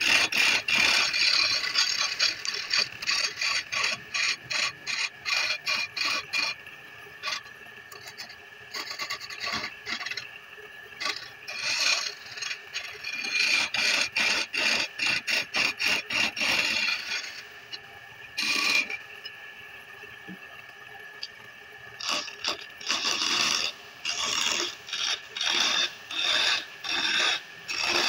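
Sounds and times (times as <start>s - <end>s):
lathe motor hum: 0.0s - 6.6s, 11.0s - 17.8s, 22.0s - 28.0s
tool rasping on spinning wood: 0.0s - 6.6s, 7.2s - 10.3s, 11.0s - 17.5s, 18.4s - 19.0s, 22.0s - 28.0s.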